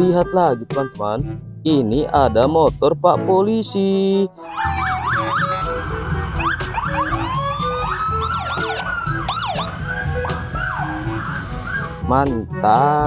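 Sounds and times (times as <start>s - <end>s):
police sirens wailing: 4.4s - 12.1s
low rumble of engines: 4.6s - 12.1s.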